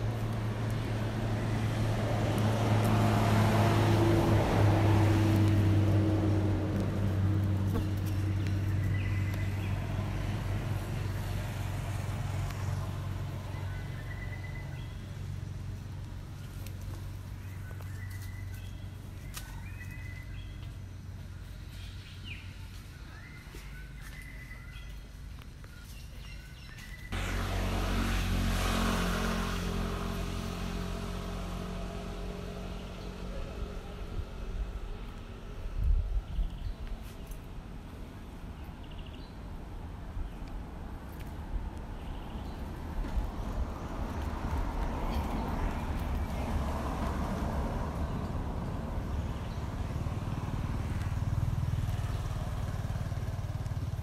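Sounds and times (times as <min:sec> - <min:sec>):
vehicle engine humming: 0:00.0 - 0:54.0.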